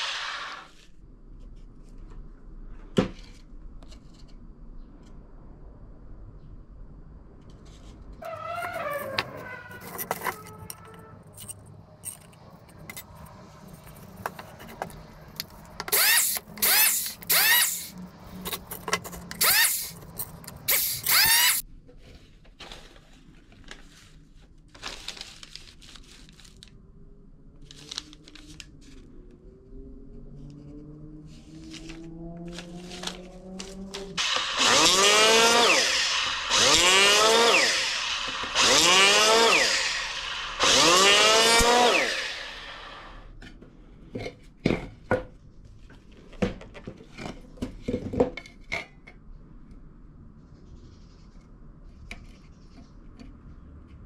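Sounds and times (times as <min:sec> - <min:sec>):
hand saw cutting wood: 0:15.9 - 0:17.9, 0:34.2 - 0:43.1.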